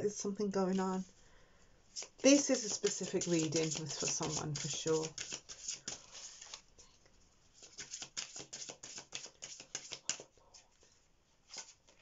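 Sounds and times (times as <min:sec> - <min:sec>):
cards being shuffled: 0:01.9 - 0:06.6, 0:07.6 - 0:10.3, 0:11.5 - 0:12.0.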